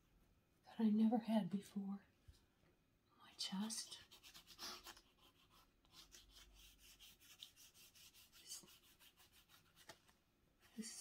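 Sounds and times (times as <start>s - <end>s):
pastel stick scratching paper: 3.7s - 10.1s.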